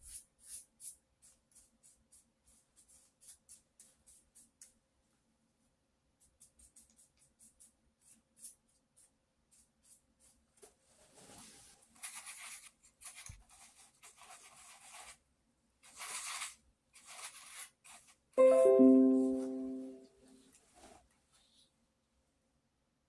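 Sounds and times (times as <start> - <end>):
paintbrush scratching on paper: 0.0 - 4.8, 6.2 - 10.5, 12.0 - 15.2, 15.8 - 18.2.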